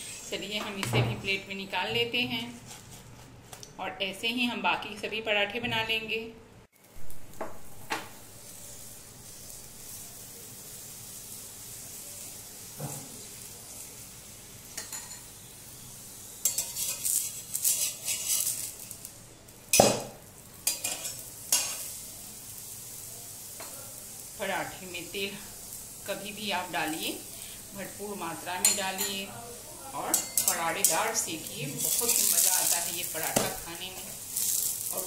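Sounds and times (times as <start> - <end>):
flatbread sizzling on iron pan: 6.7 - 35.0
metal spatula scraping pan: 16.4 - 18.8.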